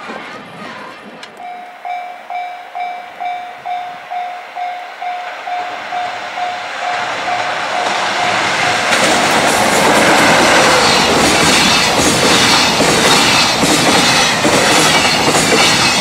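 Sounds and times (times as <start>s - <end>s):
freight train rumble: 0.0s - 16.0s
level crossing bell ringing: 1.4s - 8.8s.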